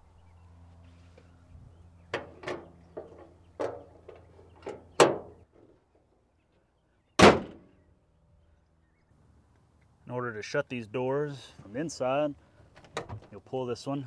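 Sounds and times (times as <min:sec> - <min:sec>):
steel car hood slamming shut: 0:04.7 - 0:05.4, 0:07.2 - 0:07.7.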